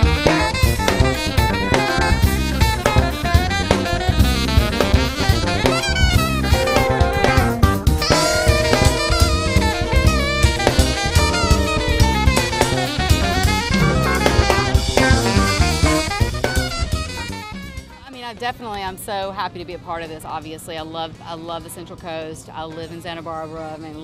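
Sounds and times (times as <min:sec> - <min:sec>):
saxophone: 0:00.0 - 0:18.1
drum kit beat: 0:00.0 - 0:18.7
upbeat jazz music: 0:00.0 - 0:19.0.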